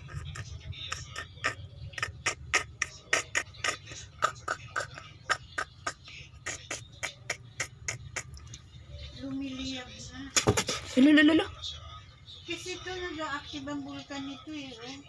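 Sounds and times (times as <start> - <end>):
kittens mewing: 0.0 - 8.5
kittens spitting and hissing: 0.0 - 8.5.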